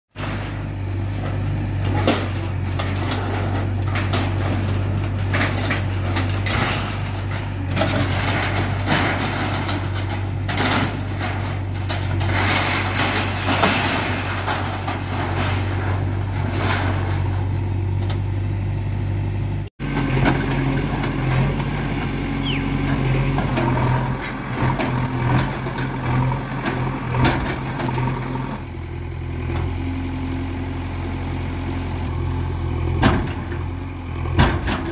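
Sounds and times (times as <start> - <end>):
metal roof sheets crashing: 0.1 - 17.5
diesel engine under load: 0.1 - 34.9.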